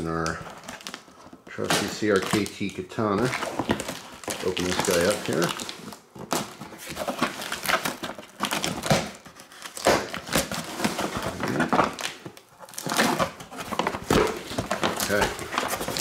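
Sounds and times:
cardboard flaps crinkling and scraping: 0.0 - 16.0
packing tape tearing: 0.0 - 16.0.

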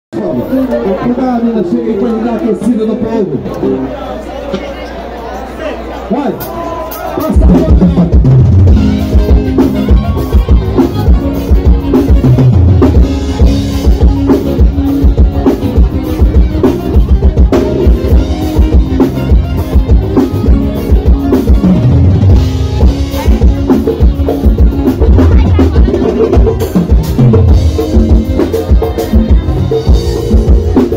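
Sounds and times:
bass: 0.1 - 30.9
drum kit beat: 6.3 - 30.9
electric guitar: 6.4 - 30.9
accordion: 6.9 - 30.9.

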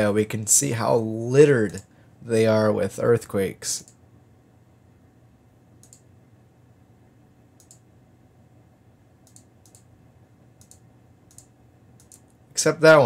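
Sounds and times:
faint computer mouse clicks: 5.8 - 6.1, 7.6 - 7.8, 9.2 - 9.9, 10.6 - 12.4.

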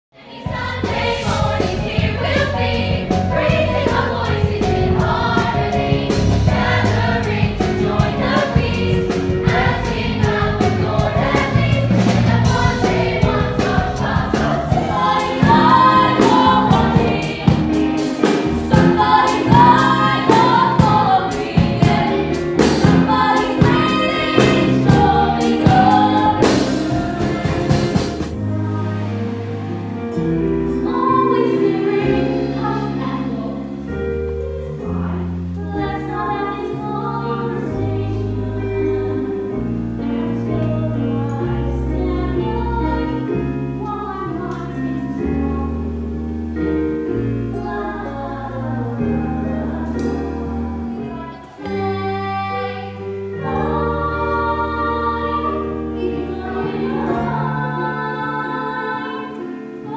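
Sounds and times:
ensemble singing with band: 0.2 - 43.8, 47.1 - 59.9
drum beat: 11.5 - 28.4.

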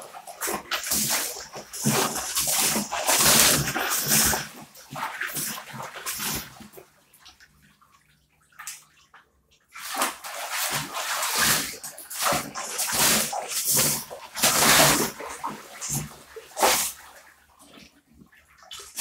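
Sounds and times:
dog splashing in water: 0.1 - 6.8, 9.7 - 17.9.

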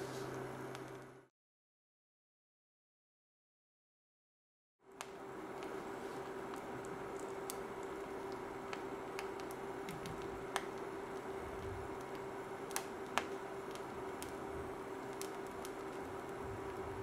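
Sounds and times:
egg frying with crackles and pops: 0.1 - 1.3, 4.9 - 17.0
induction cooker humming: 4.8 - 17.0.

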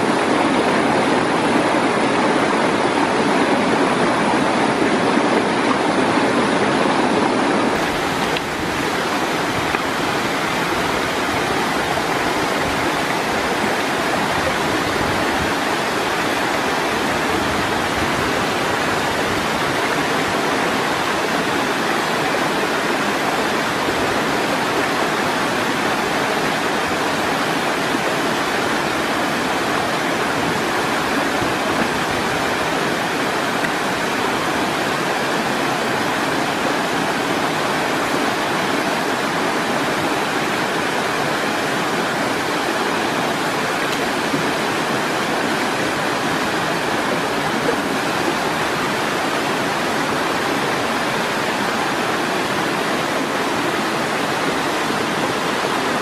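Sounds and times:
waterfall rushing: 0.0 - 56.0.

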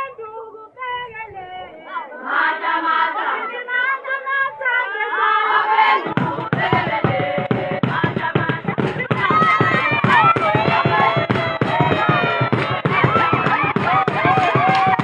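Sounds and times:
women singing in chorus: 0.0 - 15.0
fast rhythmic beats: 5.4 - 15.0.

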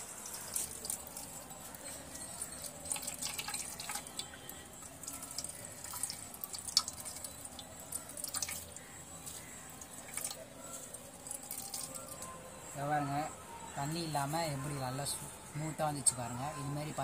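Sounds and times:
water dripping into metal pot: 0.0 - 12.4.

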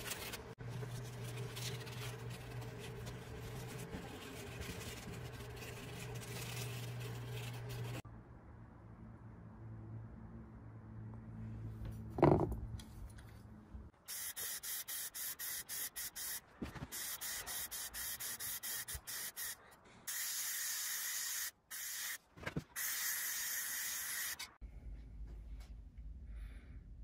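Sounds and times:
spray paint can hissing: 14.1 - 22.2, 22.8 - 24.5.

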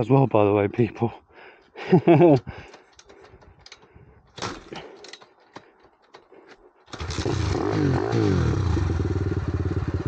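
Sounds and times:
kick-start clatter: 6.9 - 9.0
motorbike engine running: 7.0 - 10.0.

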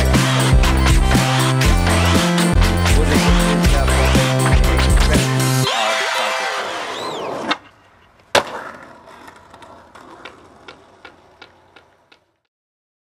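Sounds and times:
music track: 0.0 - 7.4
skateboard slapping on concrete: 7.3 - 12.5
skateboard wheels ticking over seams: 7.3 - 12.5.

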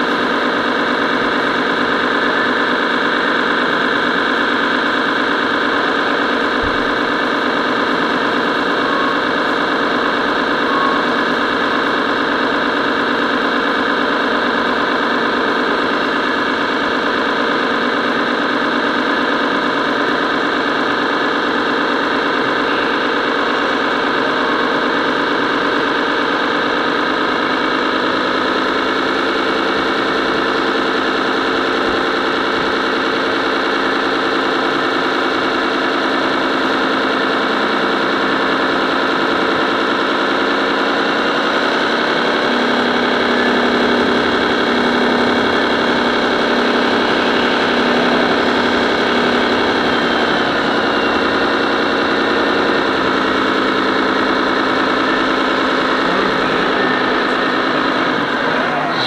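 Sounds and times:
toy truck motor drone: 0.0 - 59.0.

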